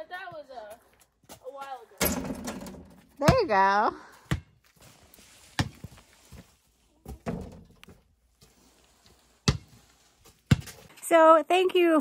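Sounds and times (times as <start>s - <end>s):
basketball bouncing on concrete: 1.2s - 3.6s, 4.2s - 4.6s, 5.6s - 5.8s, 9.4s - 10.9s.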